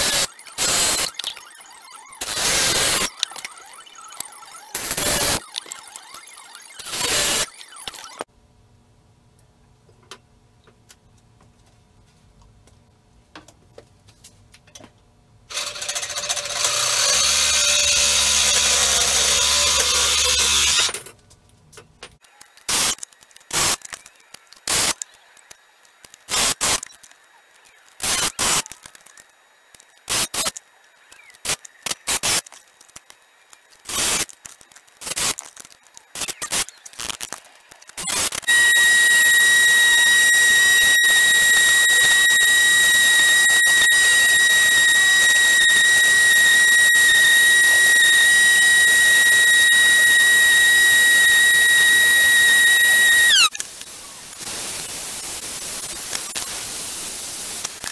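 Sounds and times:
grinder high whine: 0.0 - 8.3, 15.5 - 21.1, 33.5 - 53.6
loud steady power tool noise: 15.5 - 21.0, 38.2 - 53.5.

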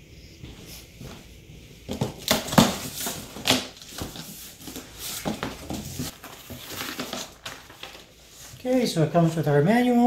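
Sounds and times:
cardboard rustling and scraping: 1.9 - 8.6.

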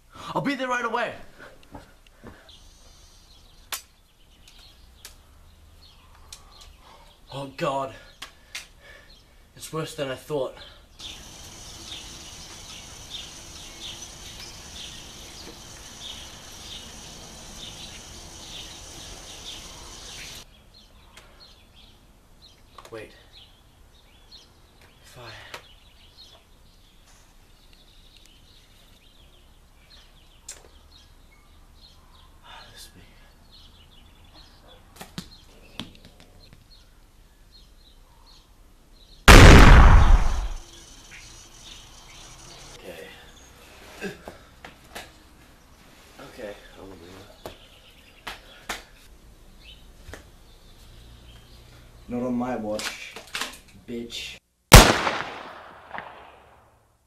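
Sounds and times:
bird-like chirps: 10.6 - 43.7
steady hiss: 11.0 - 20.5, 39.3 - 42.8
loud explosion: 39.3 - 40.6.

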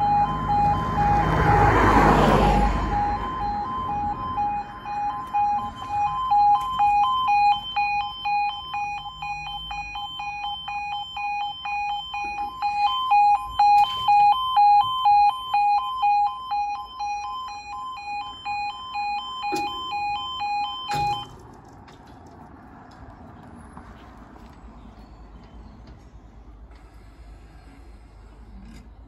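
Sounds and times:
two-tone crossing alarm: 0.0 - 21.4.

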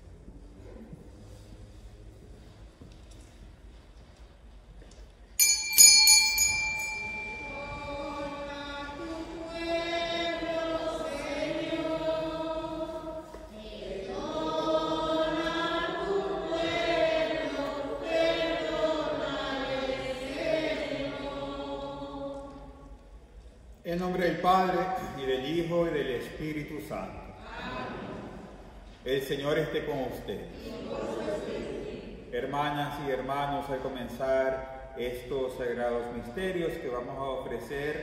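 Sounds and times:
small bell ringing: 5.4 - 8.0
choir singing a hymn: 6.8 - 23.0, 24.4 - 38.0.

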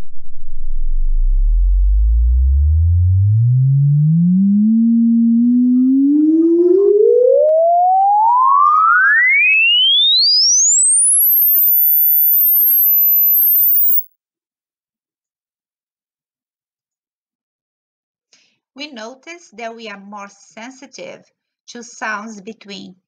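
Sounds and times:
sine tone sweeping upward: 0.0 - 14.0.

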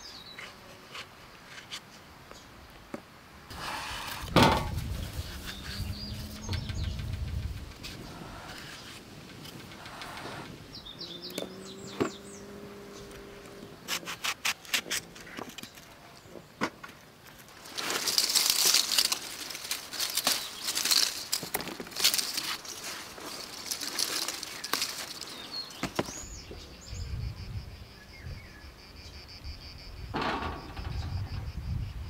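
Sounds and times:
leafy vines rustling: 3.5 - 26.8
bird chirping: 5.2 - 13.8, 23.7 - 30.1.

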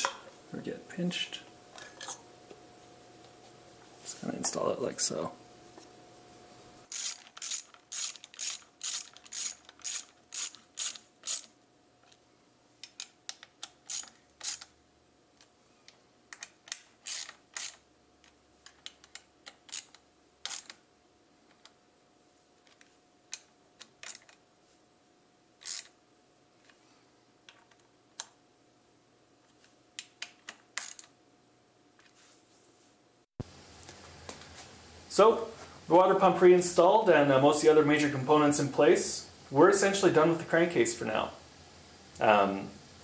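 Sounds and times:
socket ratchet clicking: 6.9 - 11.5, 12.8 - 14.7, 16.3 - 17.8, 18.7 - 20.8, 25.6 - 25.9.

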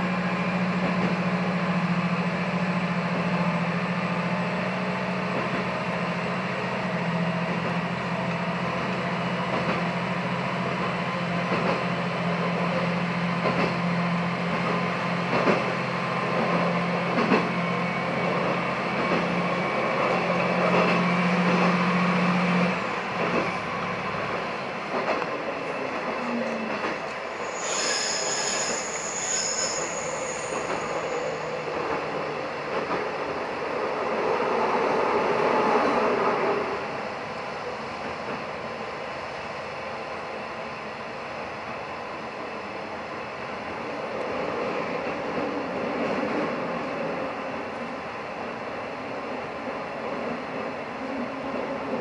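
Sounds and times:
diesel railcar engine droning: 0.0 - 52.0
high wheel squeal: 27.2 - 32.4.

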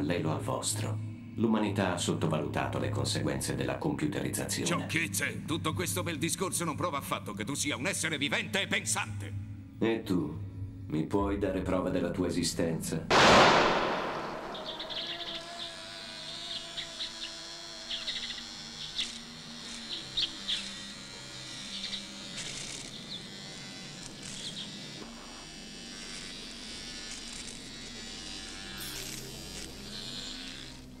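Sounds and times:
buzzing insect-like chirps: 14.0 - 31.0
electric shaver buzzing: 14.4 - 31.0.

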